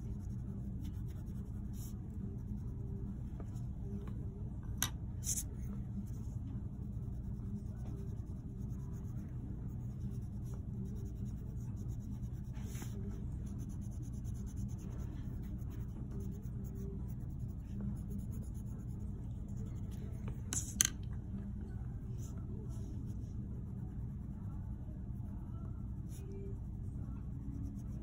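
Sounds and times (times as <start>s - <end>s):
pencil scratching on paper: 0.0s - 3.0s, 5.2s - 5.5s, 6.1s - 20.8s, 25.9s - 28.0s
steady low hum: 0.0s - 28.0s.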